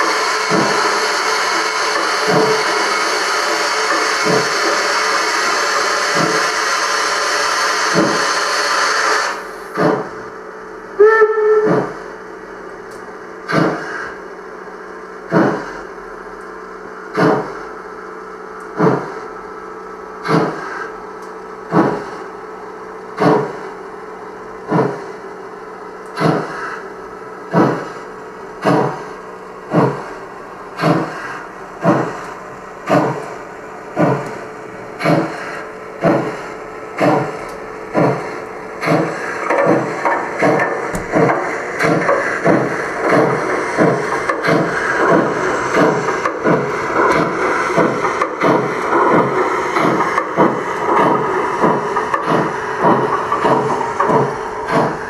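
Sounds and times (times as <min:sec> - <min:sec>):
steam hiss: 0:00.0 - 0:10.2, 0:13.4 - 0:14.2, 0:26.2 - 0:26.9, 0:30.8 - 0:33.4, 0:34.0 - 0:55.0
steam locomotive exhaust chuffs: 0:00.0 - 0:55.0
steam locomotive whistle toot: 0:11.0 - 0:12.0.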